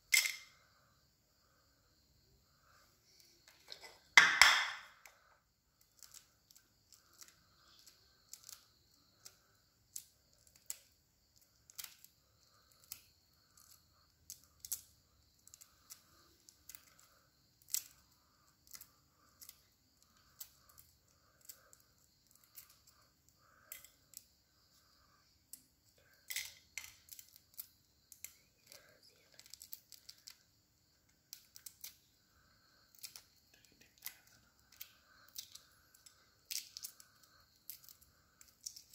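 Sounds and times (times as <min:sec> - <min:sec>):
egg shell cracking: 0:00.1 - 0:00.5, 0:03.5 - 0:05.2, 0:09.2 - 0:12.1, 0:16.6 - 0:18.0, 0:25.5 - 0:30.4, 0:31.3 - 0:32.0, 0:32.9 - 0:33.4, 0:34.0 - 0:38.9
egg shell peeling crackles: 0:03.2 - 0:24.8, 0:25.5 - 0:38.9.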